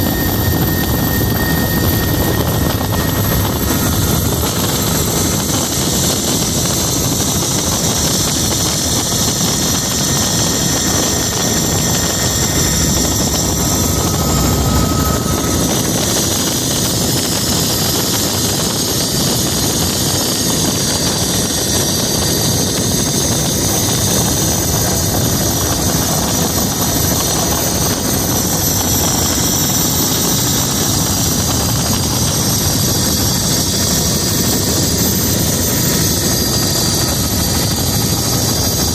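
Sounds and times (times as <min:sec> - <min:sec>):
thin high whine: 0:00.0 - 0:19.1
helicopter engine and rotor noise: 0:00.0 - 0:38.9.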